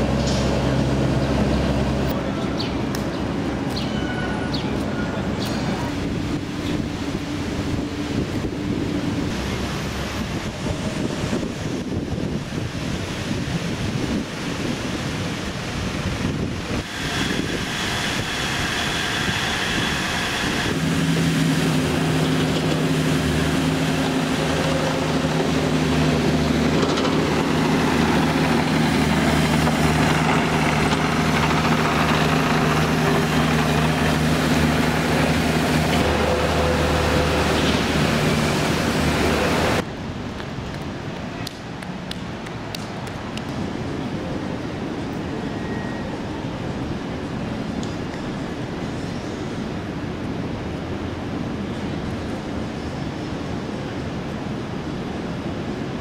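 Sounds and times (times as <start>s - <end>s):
city street traffic: 0.0s - 56.0s
wind on microphone: 4.7s - 41.2s
low mechanical hum: 16.3s - 39.8s
brief high whine: 16.8s - 21.1s.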